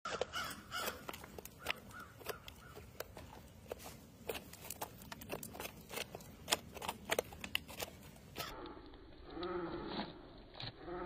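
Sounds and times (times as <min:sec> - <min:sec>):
beaks tapping on feed trough: 0:00.1 - 0:03.8.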